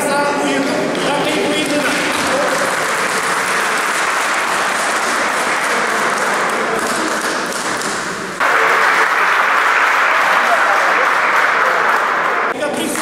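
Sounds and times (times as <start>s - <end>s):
people clapping in a large hall: 0.6s - 13.0s.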